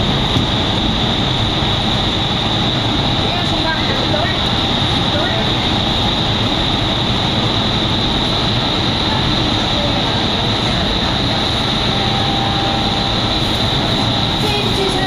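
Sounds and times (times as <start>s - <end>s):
loud rush of air from fans: 0.0s - 15.0s
high steady tone: 11.6s - 15.0s.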